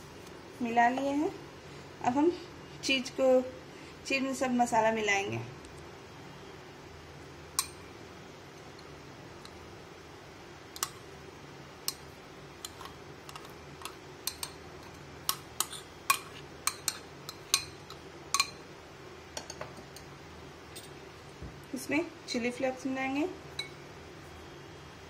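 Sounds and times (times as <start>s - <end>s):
spoon clinking against bowls: 7.6s - 7.8s, 12.6s - 18.6s, 23.6s - 23.8s.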